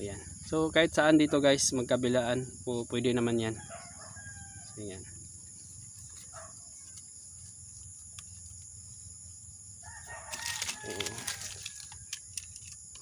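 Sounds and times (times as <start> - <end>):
rooster crowing: 3.5 - 4.9, 9.8 - 12.2
faint ticks: 7.8 - 8.7.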